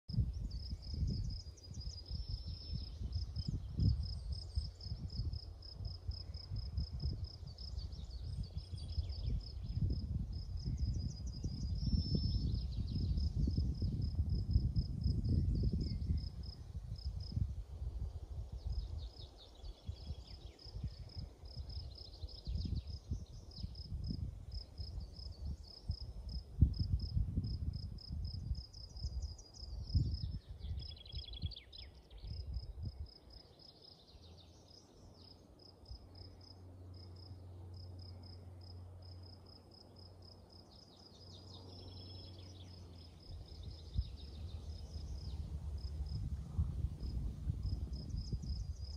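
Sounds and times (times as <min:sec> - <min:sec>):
gusty wind rumble on microphone: 0:00.1 - 0:35.3, 0:41.4 - 0:48.9
insect chirping: 0:00.1 - 0:48.9
faint low hum: 0:32.2 - 0:48.9.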